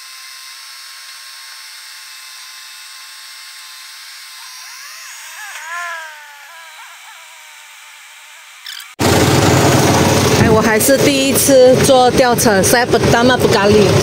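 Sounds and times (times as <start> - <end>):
hydraulic system whining: 4.4 - 12.2.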